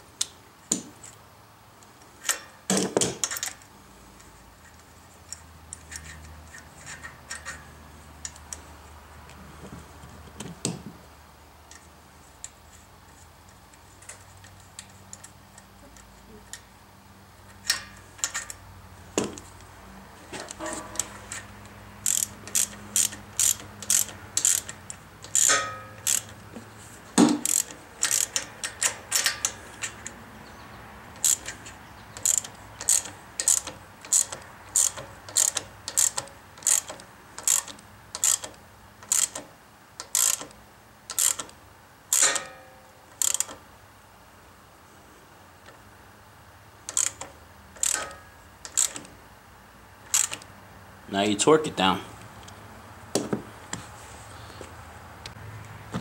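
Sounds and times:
socket ratchet clicking: 22.0s - 26.4s, 27.4s - 30.2s, 31.2s - 42.6s, 43.2s - 43.6s, 46.9s - 49.1s, 50.0s - 50.5s.

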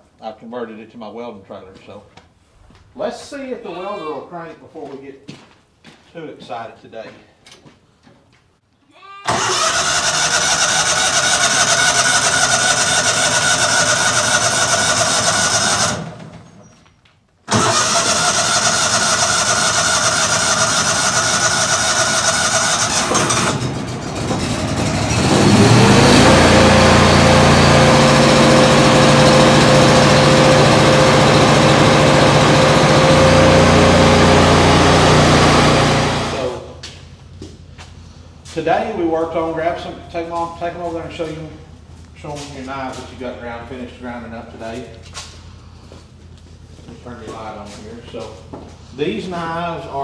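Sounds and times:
engine cranking on starter: 9.3s - 16.6s, 17.5s - 36.8s
engine running: 9.3s - 16.6s, 17.5s - 39.0s.

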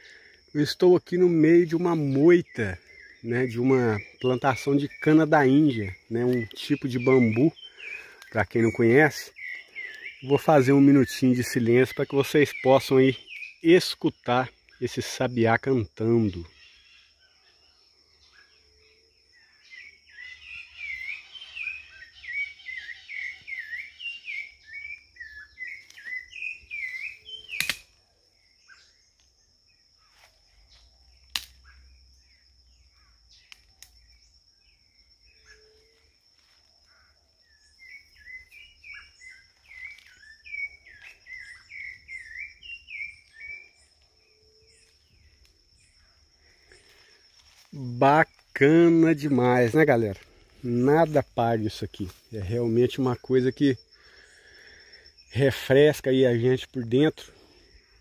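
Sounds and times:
sharp clicks: 27.5s - 28.0s.

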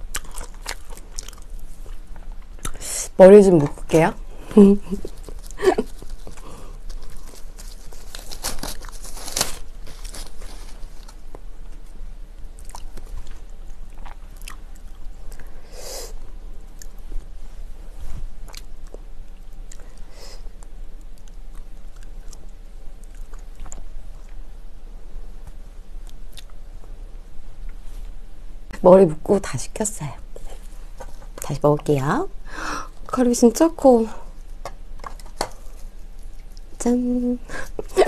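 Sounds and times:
hair rustling and crackling: 4.6s - 11.3s.

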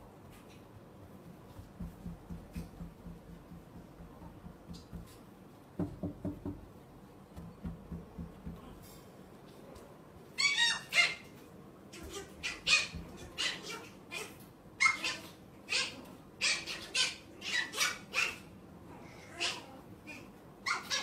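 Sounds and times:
chihuahua yapping: 12.0s - 18.5s.

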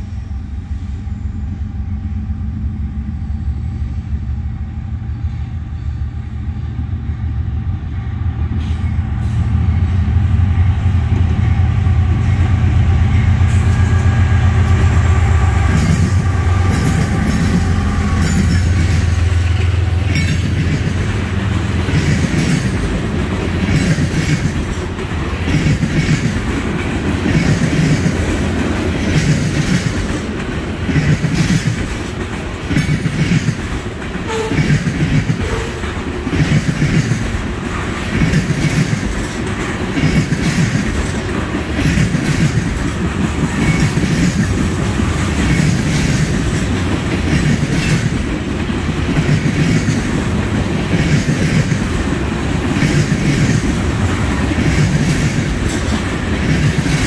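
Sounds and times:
train rumble: 0.0s - 57.0s
train wheels clattering over joints: 15.7s - 57.0s.

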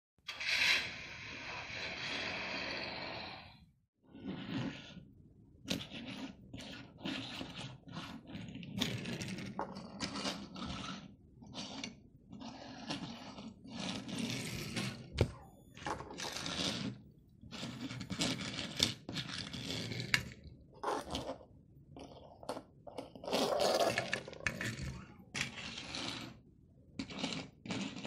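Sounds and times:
toy car wheels rolling on table: 0.3s - 3.6s, 4.2s - 5.0s, 5.7s - 26.4s, 27.0s - 28.0s.

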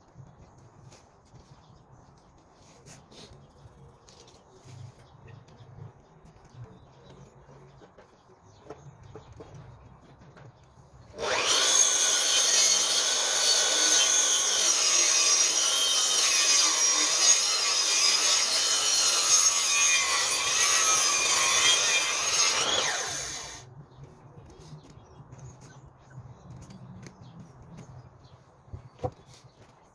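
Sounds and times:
mitre saw cutting timber: 11.1s - 23.6s.

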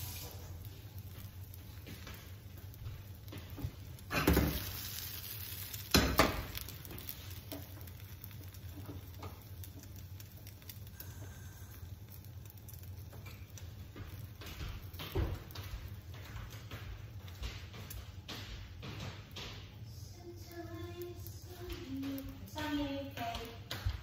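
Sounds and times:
omelette sizzling in frying pan: 0.0s - 24.0s
pan clunking on stove grate: 4.1s - 4.8s.

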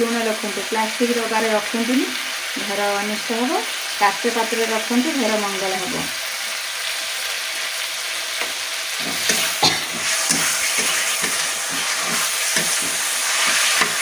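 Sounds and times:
tomatoes sizzling in oil: 0.0s - 14.0s
metal spatula scraping pan: 9.0s - 14.0s.

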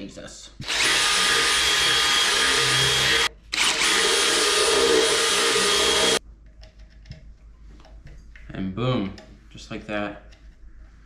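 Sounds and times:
cordless drill boring through plastic: 0.6s - 6.2s.

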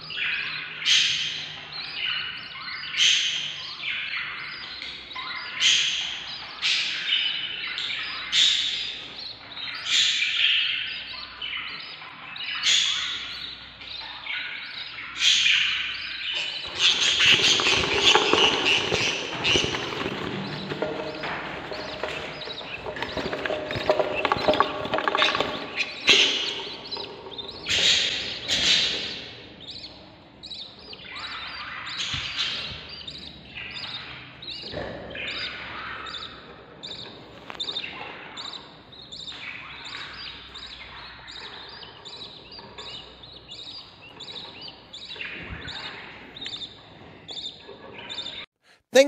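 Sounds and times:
chicks begging calls: 0.0s - 49.0s.

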